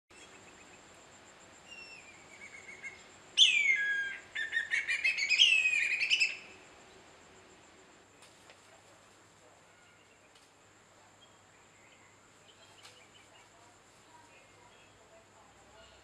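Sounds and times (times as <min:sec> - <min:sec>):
kite whistling call: 0:01.7 - 0:06.5.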